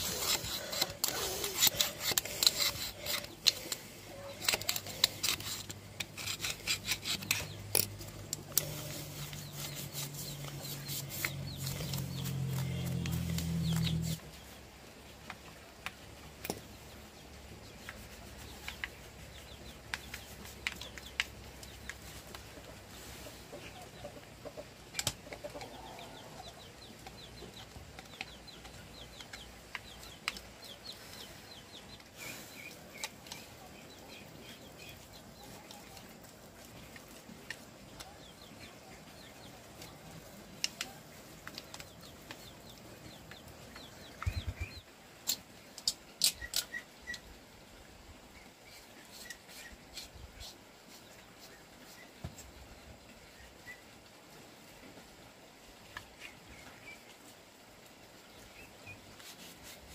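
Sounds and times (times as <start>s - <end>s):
chickens clucking: 17.6s - 44.9s.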